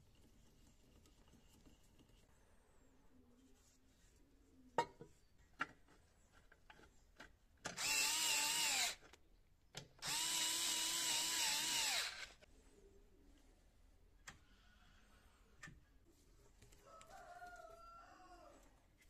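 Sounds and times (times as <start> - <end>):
cordless drill driving a bolt: 7.7 - 9.1, 10.0 - 12.4.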